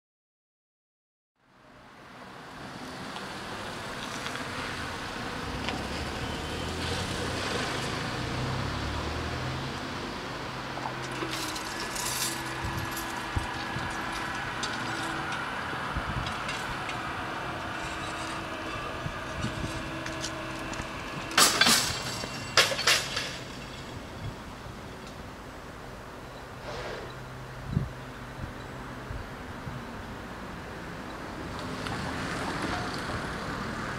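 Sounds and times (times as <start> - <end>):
road traffic passing: 1.4 - 33.9
electric hum of barrier motors: 9.6 - 23.2.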